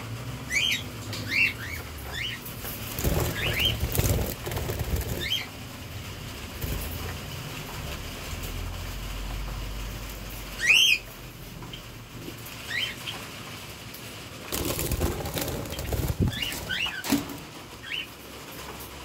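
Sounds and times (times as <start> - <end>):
budgerigars chirping: 0.5 - 4.3, 15.6 - 17.0
rustling: 2.6 - 5.6, 14.4 - 17.6.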